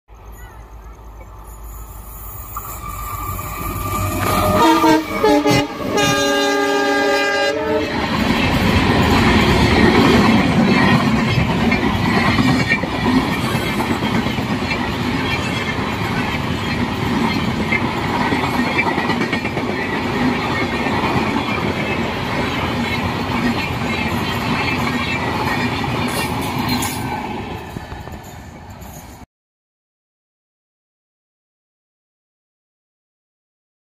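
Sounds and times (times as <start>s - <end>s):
locomotive horn: 4.0s - 8.2s
train wheels clattering on rails: 8.0s - 29.2s.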